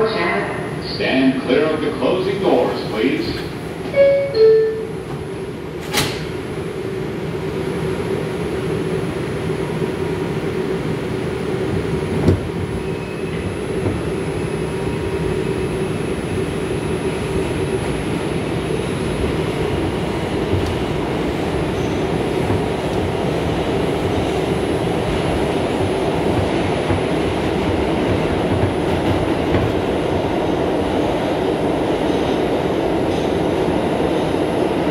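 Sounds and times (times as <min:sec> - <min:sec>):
train rumbling: 0:00.0 - 0:34.9
train doors banging shut: 0:03.8 - 0:06.4, 0:12.1 - 0:14.1, 0:25.1 - 0:29.9.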